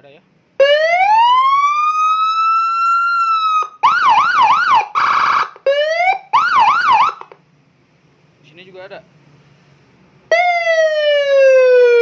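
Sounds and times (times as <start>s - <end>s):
police siren wail and yelp: 0.6s - 7.4s, 10.3s - 12.0s.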